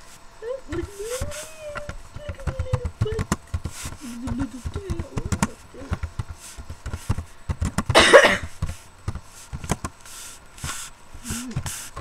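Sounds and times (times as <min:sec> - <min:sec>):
breathy burst: 0:10.1 - 0:12.0.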